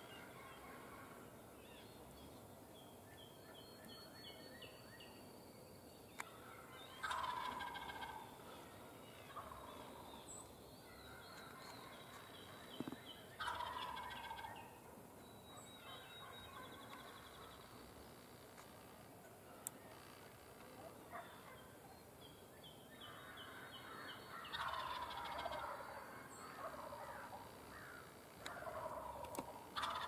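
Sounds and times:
turkey gobbling: 7.0s - 8.3s, 9.3s - 10.1s, 13.4s - 14.7s, 24.4s - 30.0s.

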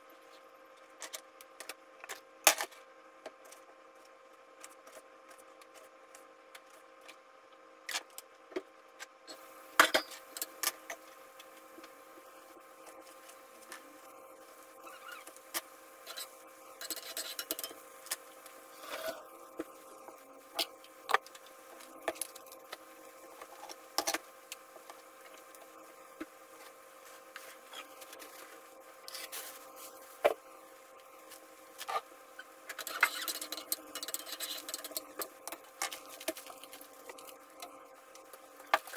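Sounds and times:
faint steady hum: 0.0s - 38.9s
stirring in a frying pan: 9.4s - 30.3s, 30.9s - 38.9s
utensils being handled: 32.7s - 36.1s.

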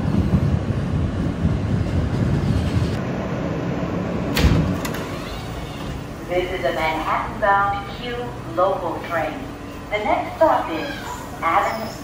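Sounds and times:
subway car running: 0.0s - 12.0s
subway doors thunking open: 4.2s - 6.9s.

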